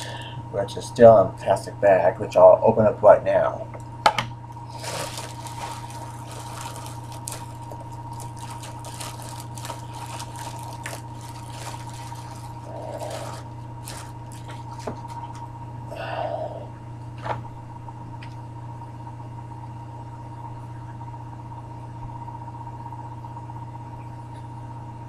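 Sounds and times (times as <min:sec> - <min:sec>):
steady electrical hum: 0:00.0 - 0:25.0
plastic bag crinkling: 0:04.6 - 0:15.4.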